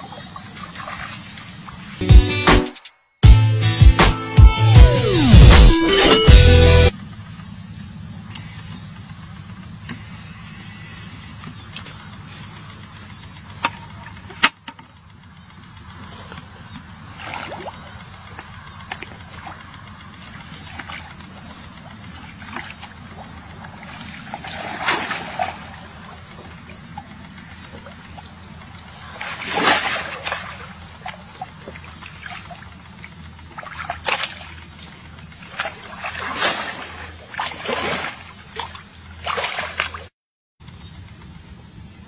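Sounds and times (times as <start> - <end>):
muddy water splashing: 0.0 - 2.0, 8.2 - 14.6, 15.6 - 40.1.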